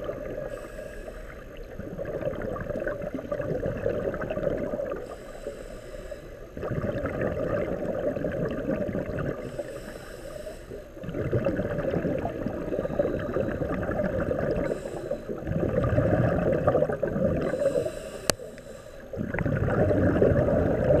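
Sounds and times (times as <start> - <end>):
underwater bubbles gurgling: 0.0 - 21.0
regulator inhales: 0.4 - 1.6, 5.0 - 6.6, 9.4 - 11.0, 14.6 - 15.4, 17.4 - 19.2.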